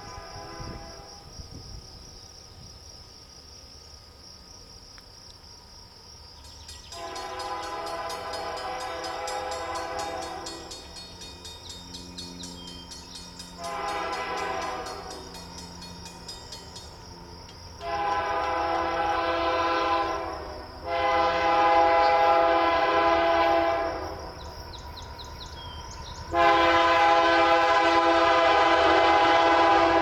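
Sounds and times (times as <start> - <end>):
locomotive air horn blasts: 0.0 - 1.3, 6.9 - 11.0, 13.5 - 15.4, 17.8 - 24.2, 26.3 - 30.0.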